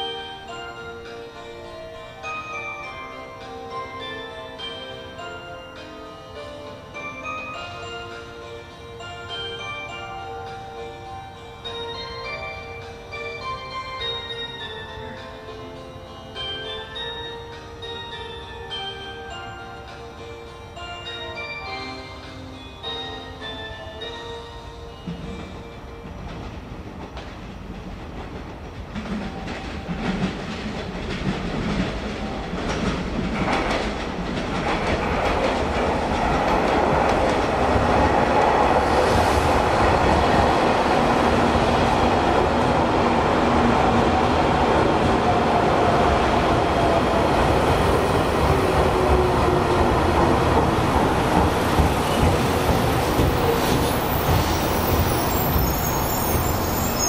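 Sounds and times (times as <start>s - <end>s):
train rumble: 21.8s - 57.0s
wheels clattering over rail joints: 26.1s - 57.0s.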